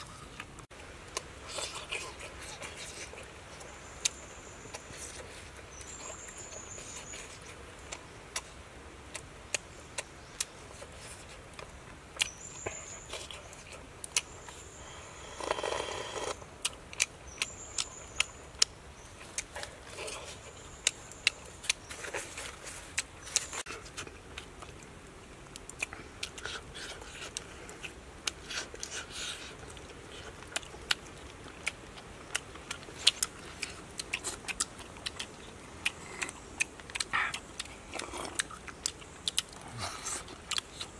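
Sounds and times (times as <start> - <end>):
wet lip smacks and chewing: 25.5 - 40.9.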